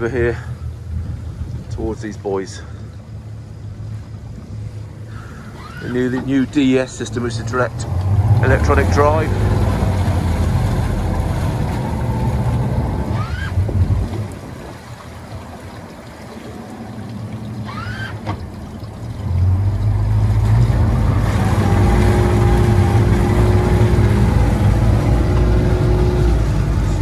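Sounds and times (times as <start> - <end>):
outboard engines rumbling: 0.0 - 27.0
short rising whines: 5.1 - 6.4.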